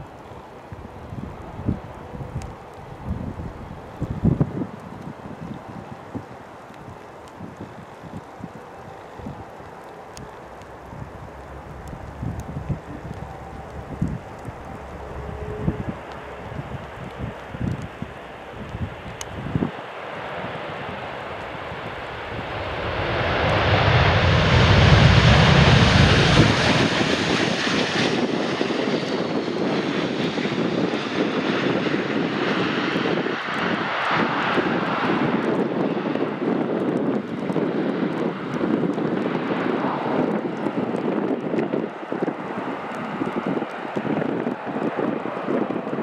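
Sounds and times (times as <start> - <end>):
aircraft rolling through water: 6.0 - 46.0
jet engines in reverse thrust: 10.2 - 46.0.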